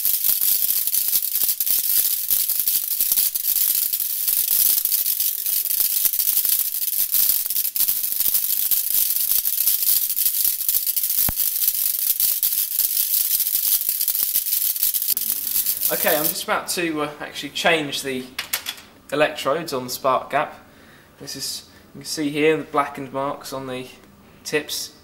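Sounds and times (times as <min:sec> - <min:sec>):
electric spark gap crackling: 0:00.0 - 0:16.4.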